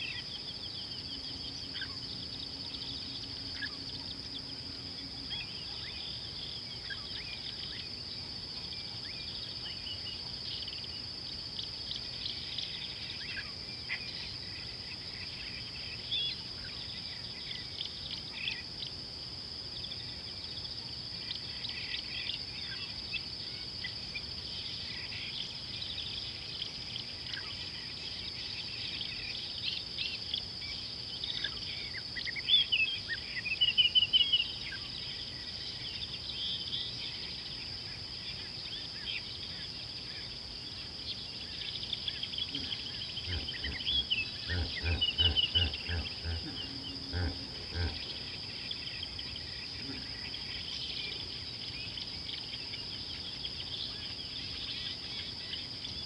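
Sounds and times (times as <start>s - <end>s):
birds chirping and trilling: 0.0s - 19.0s, 19.8s - 56.0s
insect drone: 0.0s - 56.0s
hippo grunting: 42.5s - 48.4s.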